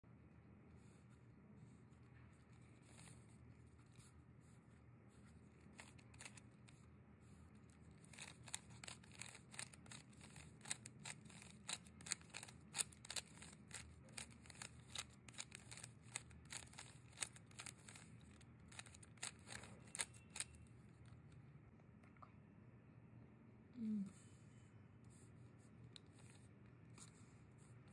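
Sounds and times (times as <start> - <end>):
puzzle cube clicking: 5.7 - 6.4, 7.9 - 20.6.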